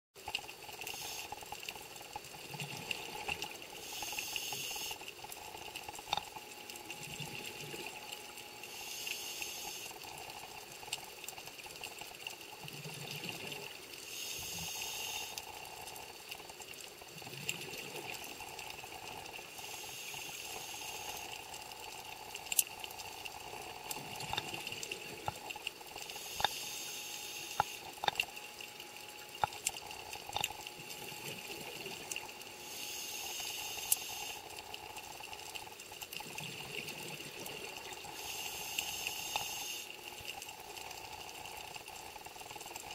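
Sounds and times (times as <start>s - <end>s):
regulator hiss on inhalation: 0.9s - 1.4s, 3.8s - 5.0s, 8.7s - 10.0s, 14.0s - 15.4s, 19.5s - 21.4s, 26.1s - 27.9s, 32.6s - 34.5s, 38.1s - 39.9s
exhaled bubbles underwater: 12.4s - 16.3s, 17.0s - 32.6s, 34.2s - 42.9s.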